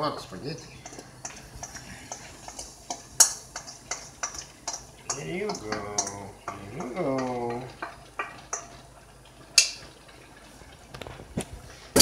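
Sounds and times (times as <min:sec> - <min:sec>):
wooden spoon stirring spaghetti: 0:00.0 - 0:10.9
cookware knocks and clatters: 0:00.8 - 0:08.8.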